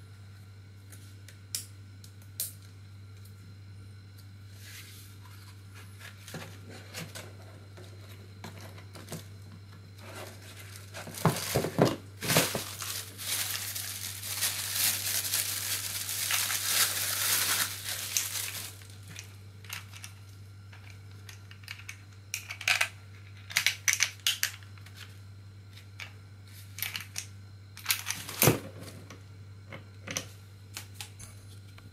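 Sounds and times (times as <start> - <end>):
plastic bag crinkling and tearing: 10.2 - 19.2.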